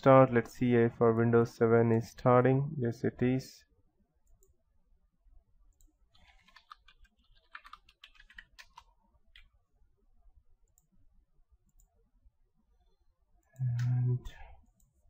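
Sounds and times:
computer keyboard typing: 5.8 - 9.5.

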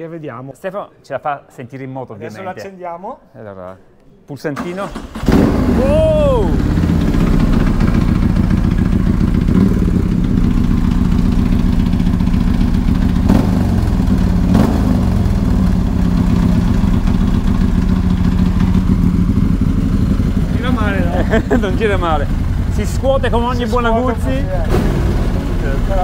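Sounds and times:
motorcycle throttle blips: 5.3 - 25.9
motorcycle engine idling: 5.4 - 26.0.

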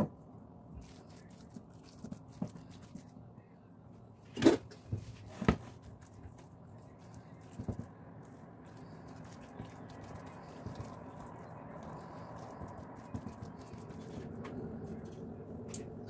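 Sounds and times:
hands squishing raw meat: 0.8 - 3.2, 5.8 - 15.8.

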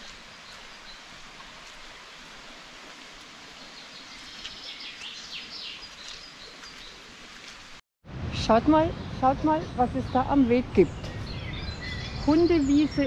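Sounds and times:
steady outdoor hiss: 0.0 - 13.0
woodland birds singing: 3.6 - 7.0, 8.9 - 13.0.

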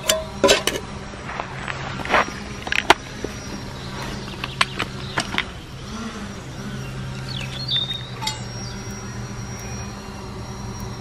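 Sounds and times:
steady low hum: 0.0 - 11.0
metal gear clinking: 8.2 - 8.6.

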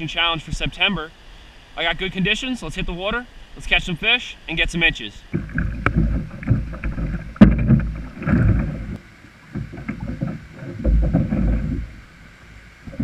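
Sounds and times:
kayak cart knocking and scraping: 5.3 - 13.0.

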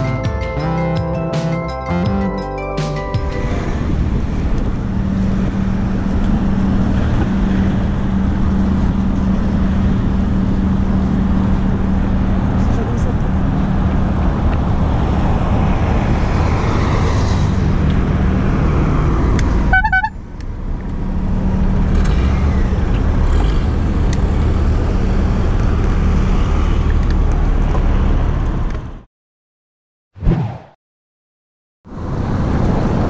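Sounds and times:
low hum of traffic: 0.0 - 29.1, 31.9 - 33.0
wind and road noise from bicycle: 3.4 - 29.1, 31.9 - 33.0
short pulsing horn toot: 19.7 - 20.1.

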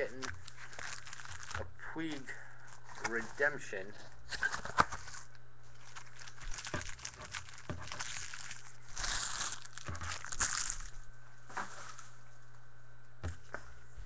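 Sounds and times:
wrapper crinkling: 0.0 - 1.7, 4.3 - 11.1
card pack wrapper tearing: 0.1 - 1.6, 4.4 - 11.0.

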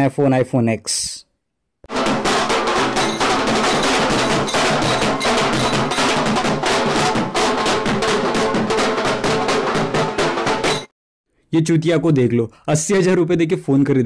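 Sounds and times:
band drums beaten fast: 1.9 - 10.9
large marching drum struck: 1.9 - 10.9.

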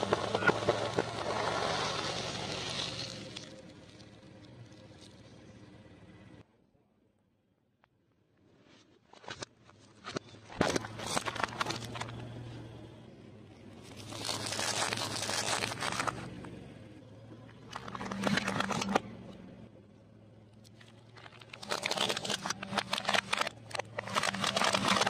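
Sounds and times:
low steady hum: 0.0 - 25.0
plastic wrappers crunching: 10.5 - 12.2, 13.8 - 16.4, 17.6 - 19.0, 20.8 - 25.0.

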